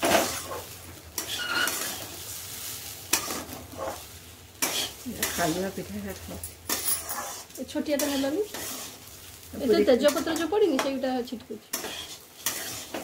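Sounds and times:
metal spatula scraping pan: 0.0 - 2.2, 3.1 - 5.8, 6.7 - 9.1, 11.7 - 13.0
oil sizzling in pan: 0.0 - 13.0.

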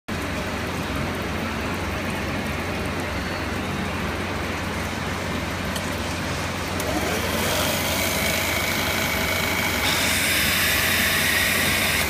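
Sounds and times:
drill press humming: 6.7 - 12.0
drill bit grinding through glass: 7.0 - 12.0.

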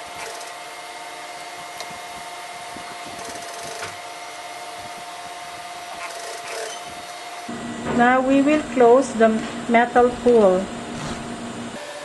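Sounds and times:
industrial sewing machine running: 0.0 - 0.8, 2.6 - 4.2, 5.8 - 6.9.

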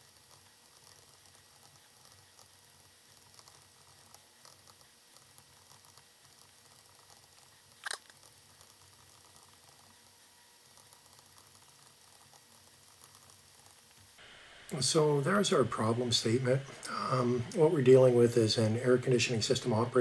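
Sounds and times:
stylus scratching on tablet screen: 0.2 - 7.6, 8.2 - 13.8.

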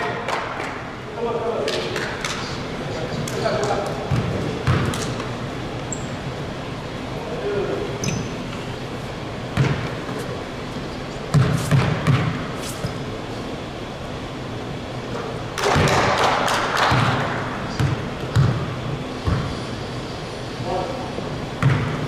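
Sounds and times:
basketball bouncing on gym floor: 3.6 - 5.1, 9.6 - 10.0, 11.3 - 12.4, 15.6 - 19.6, 21.6 - 22.0.

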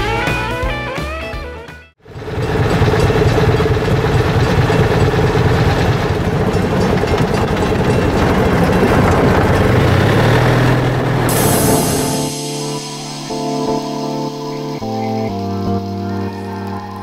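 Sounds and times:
small engine running: 2.1 - 12.4.

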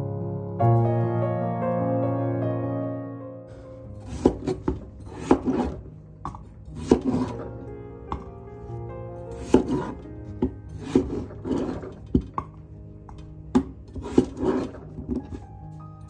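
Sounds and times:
knife chopping on wooden board: 4.1 - 7.4, 9.4 - 12.3, 13.1 - 15.3.

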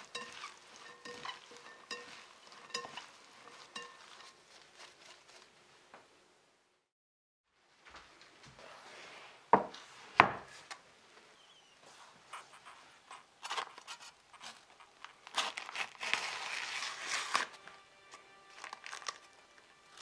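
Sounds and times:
baking paper crinkling: 0.0 - 5.9, 11.9 - 20.0.

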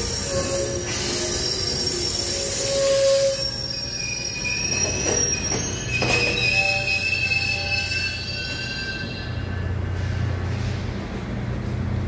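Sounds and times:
train wheels squealing: 0.0 - 10.2.

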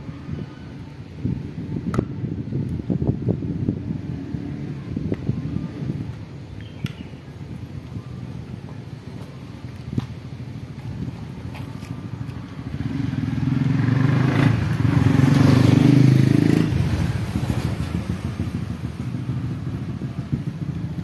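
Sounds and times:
vehicle engine passing by: 12.6 - 21.0.

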